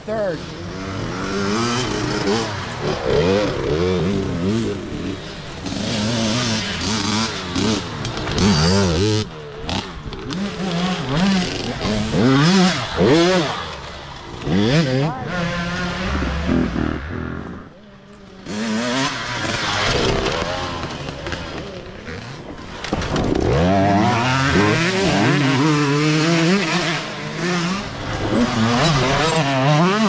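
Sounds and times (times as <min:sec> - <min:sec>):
dirt bike engines revving: 0:00.0 - 0:30.0.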